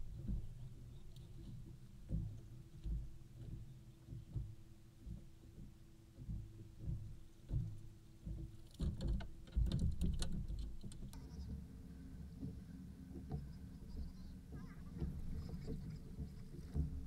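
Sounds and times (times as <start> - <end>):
faint steady hum: 0.0 - 17.0
sharp clicks and knocks: 0.2 - 11.6
waves slapping boat hull: 12.3 - 17.0.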